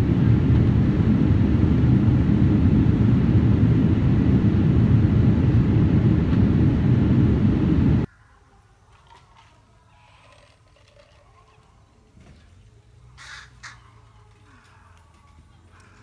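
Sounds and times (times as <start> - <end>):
jet airliner cabin rumble: 0.0 - 8.1.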